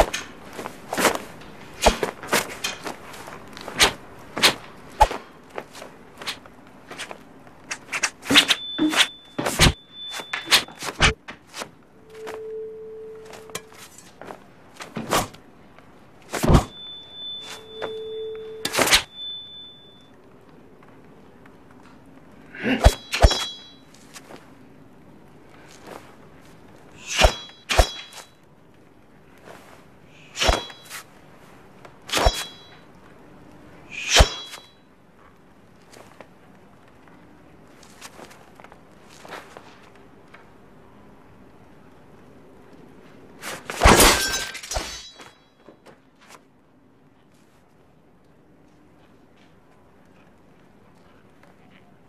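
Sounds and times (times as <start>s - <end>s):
blade swishing through air: 0.9s - 2.8s, 3.6s - 5.2s, 27.0s - 28.2s, 33.9s - 34.6s
sword whooshes and knocks: 0.9s - 3.0s, 3.6s - 12.4s, 16.3s - 18.0s, 22.8s - 23.7s, 27.0s - 28.3s, 30.3s - 31.0s, 32.1s - 32.8s, 33.9s - 34.7s
thin high ringing tone: 7.0s - 11.1s, 11.9s - 14.1s, 16.5s - 20.2s, 22.9s - 24.0s, 27.0s - 28.4s, 30.2s - 31.0s, 32.1s - 32.9s, 33.9s - 34.9s, 44.1s - 45.9s
brief metallic ring: 16.7s - 20.1s, 32.1s - 32.8s.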